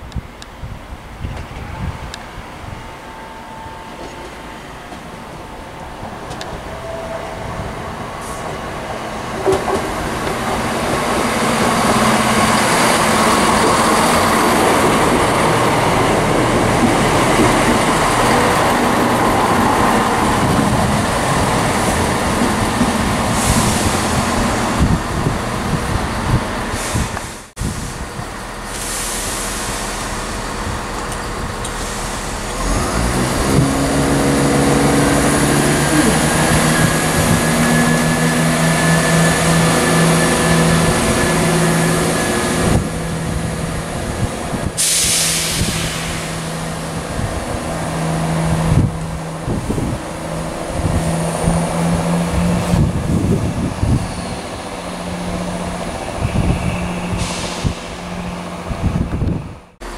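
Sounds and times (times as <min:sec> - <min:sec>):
train diesel engines running: 0:00.1 - 0:59.9
air hissing: 0:28.7 - 0:30.5, 0:31.1 - 0:33.6, 0:44.7 - 0:47.3, 0:56.2 - 0:58.1.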